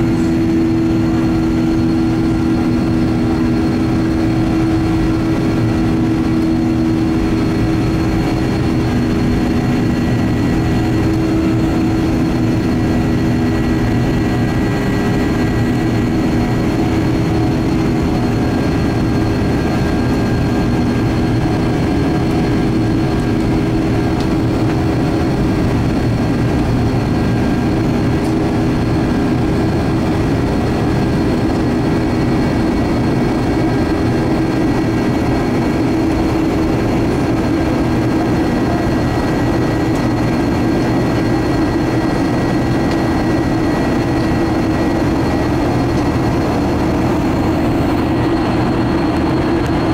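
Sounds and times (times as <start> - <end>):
jet engines droning: 0.0 - 49.9.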